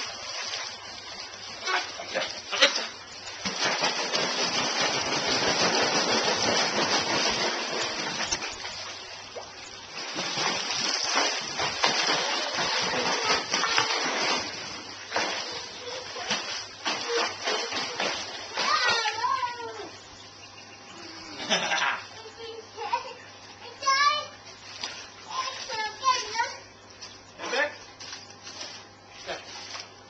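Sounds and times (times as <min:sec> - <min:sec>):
pool water splashing: 0:00.0 - 0:26.7, 0:27.3 - 0:30.0.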